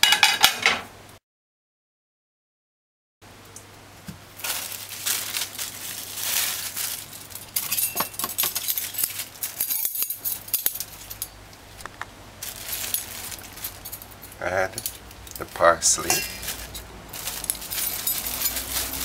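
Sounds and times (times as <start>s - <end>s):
utensils scraping metal bowl: 15.9s - 16.8s.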